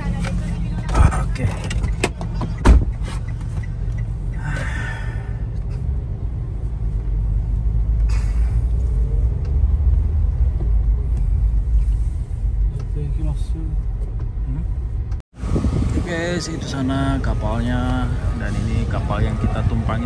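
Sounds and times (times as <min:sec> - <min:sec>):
car engine and road rumble: 0:00.0 - 0:20.0
sharp thump: 0:02.6 - 0:02.9.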